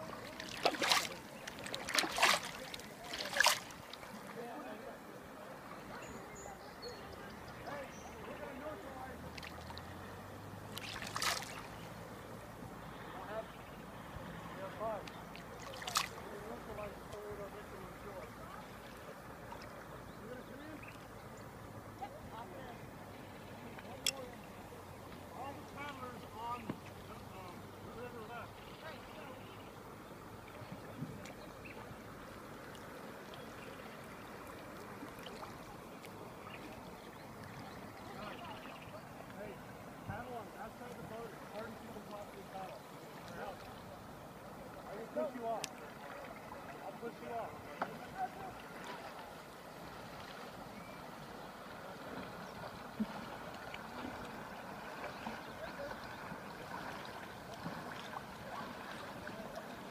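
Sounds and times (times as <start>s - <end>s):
river water lapping and trickling: 0.0s - 59.9s
small drips and splashes: 0.2s - 4.3s, 9.3s - 10.0s, 10.6s - 11.8s, 15.0s - 16.3s, 34.4s - 38.2s, 45.5s - 46.8s.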